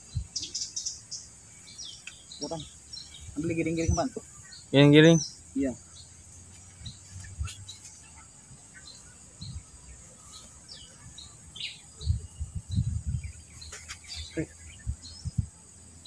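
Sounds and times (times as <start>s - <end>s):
high insect drone: 0.0s - 16.0s
small birds chirping: 0.0s - 16.0s
rustles: 13.3s - 15.0s.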